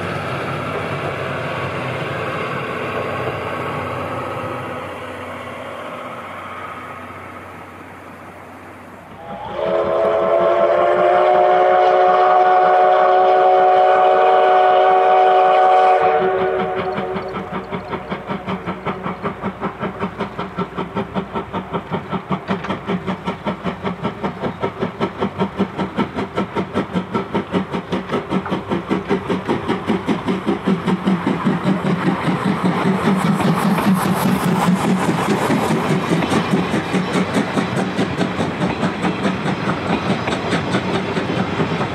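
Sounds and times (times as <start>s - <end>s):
steam locomotive exhaust chuffing: 0.0s - 41.9s
steam locomotive chime whistle: 9.2s - 17.8s.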